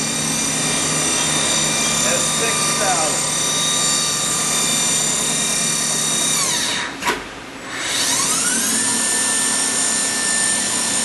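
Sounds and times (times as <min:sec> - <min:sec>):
machine spindle whining: 0:00.0 - 0:11.0.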